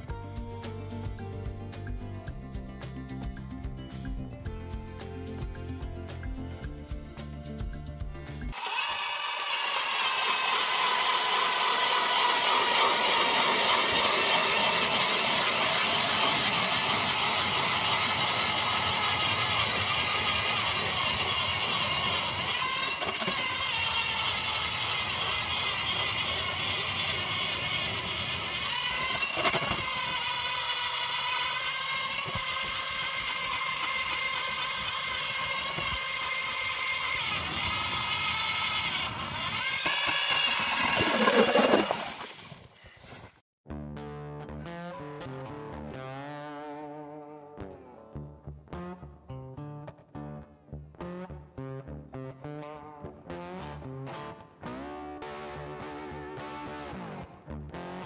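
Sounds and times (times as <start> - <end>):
electric motor whine: 8.5 - 42.3
auger bit grinding ice: 8.5 - 43.0.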